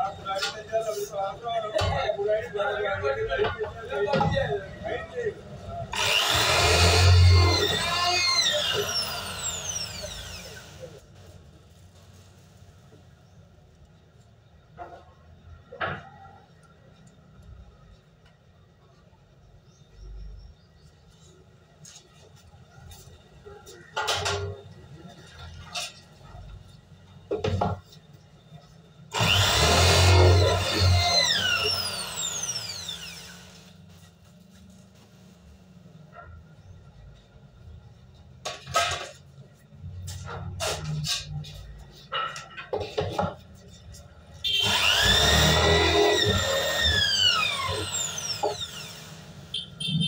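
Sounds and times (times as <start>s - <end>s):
electric drill boring metal pipe: 6.0s - 10.9s, 29.1s - 33.7s, 44.5s - 49.4s.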